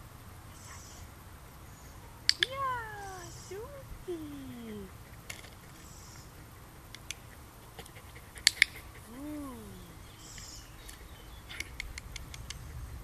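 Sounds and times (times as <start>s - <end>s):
dog-training clicker clicks: 2.3s - 2.5s.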